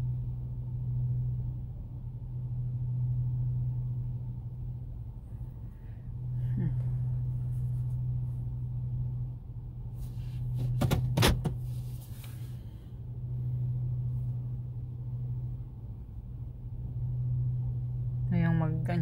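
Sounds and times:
car cabin hum: 0:06.5 - 0:19.0.

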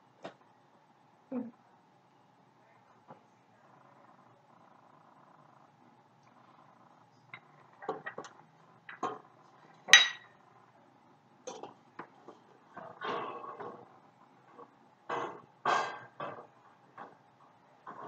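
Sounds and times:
metal spoon clinking on ceramic bowl: 0:09.9 - 0:10.3.

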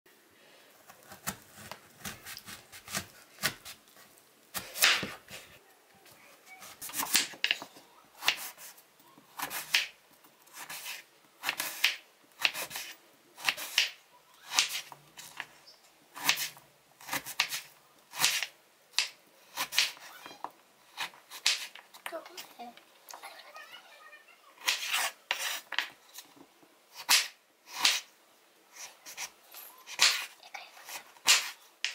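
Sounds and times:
knife cutting fruit: 0:00.9 - 0:03.8, 0:09.4 - 0:15.5, 0:16.2 - 0:20.3, 0:24.6 - 0:25.9, 0:27.0 - 0:28.1, 0:28.7 - 0:31.9.

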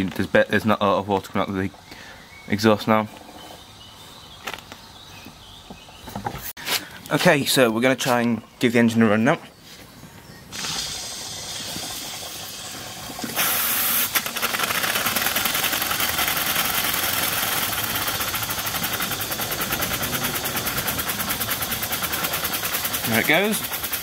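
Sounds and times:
steam hissing: 0:10.5 - 0:24.0
steam engine running: 0:10.6 - 0:24.0.

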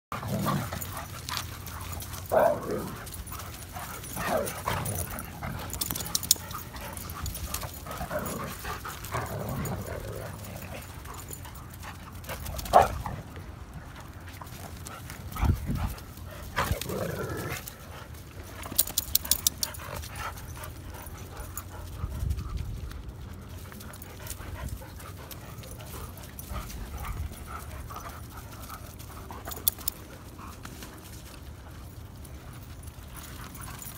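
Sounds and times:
dogs vocalizing while playing: 0:00.1 - 0:33.9
dogs running: 0:00.2 - 0:33.9.

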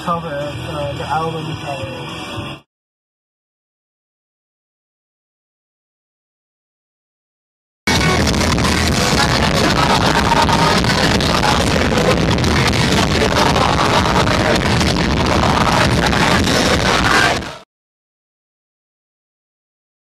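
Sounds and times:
loud rock music: 0:00.0 - 0:02.7, 0:07.9 - 0:17.6.

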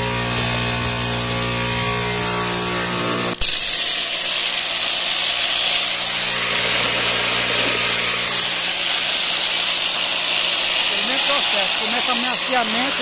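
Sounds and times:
low motor hum: 0:00.0 - 0:03.6, 0:04.2 - 0:13.0
wooden balls churning: 0:03.4 - 0:13.0.

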